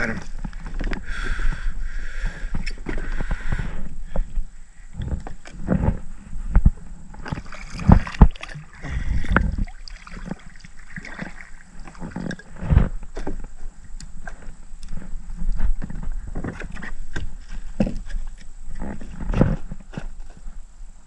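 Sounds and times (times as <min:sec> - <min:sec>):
water splashing and sloshing: 0:07.1 - 0:18.4
paddle knocking kayak hull: 0:07.2 - 0:13.4.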